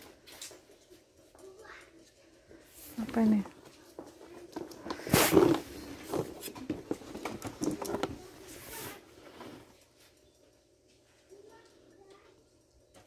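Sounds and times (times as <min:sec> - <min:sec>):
handling rustling and knocks: 0:02.7 - 0:10.2.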